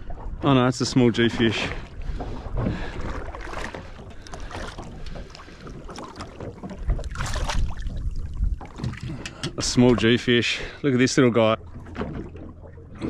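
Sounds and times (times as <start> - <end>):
water splashing and lapping: 0.0 - 13.0
wind on microphone: 6.8 - 10.1.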